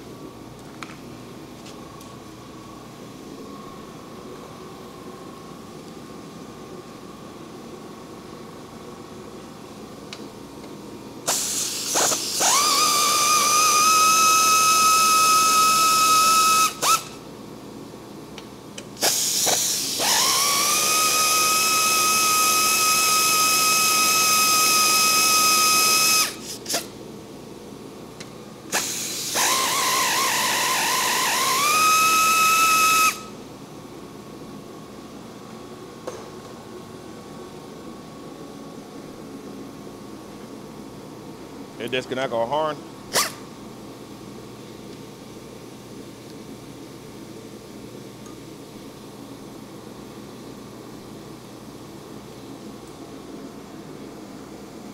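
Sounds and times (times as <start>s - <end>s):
power tool whining: 11.3s - 17.1s, 19.0s - 26.8s, 28.7s - 33.3s.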